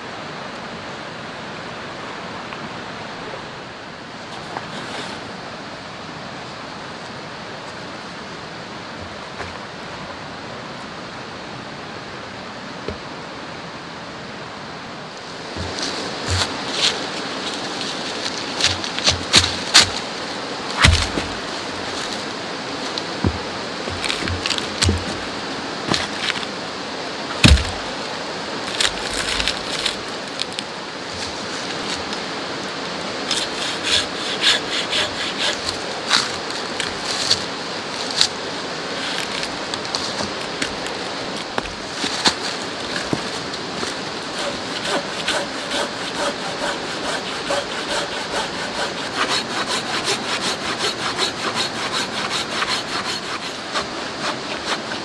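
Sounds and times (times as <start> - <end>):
pruning saw rasping through log: 15.5 - 25.3, 27.3 - 28.0, 28.7 - 30.4, 33.3 - 37.4, 39.0 - 55.0
heavy wooden knock: 15.6 - 16.6, 20.8 - 21.4, 23.2 - 25.3, 27.4 - 27.9.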